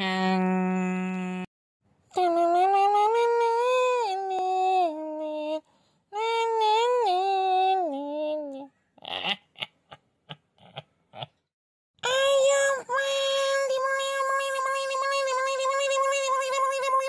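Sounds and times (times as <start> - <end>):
synthetic high-pitched voice speaking: 12.0 - 17.0.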